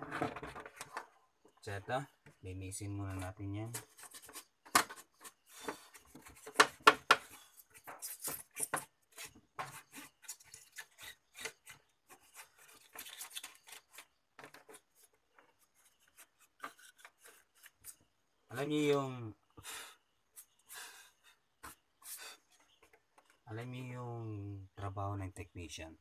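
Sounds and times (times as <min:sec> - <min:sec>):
rubbing and scraping strokes: 0:03.0 - 0:18.1.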